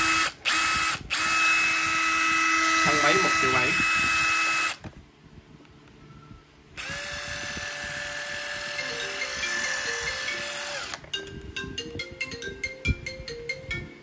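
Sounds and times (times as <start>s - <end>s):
impact driver motor spinning: 0.0s - 4.9s, 6.8s - 11.0s.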